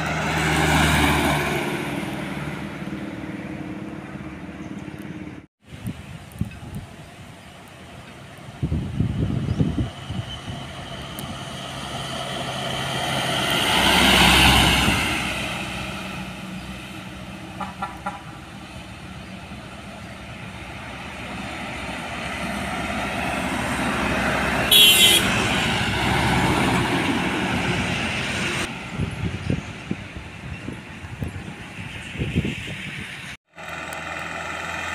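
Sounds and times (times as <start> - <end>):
diesel trucks passing: 0.0 - 34.9
truck horn blast: 17.5 - 18.4, 24.6 - 25.7.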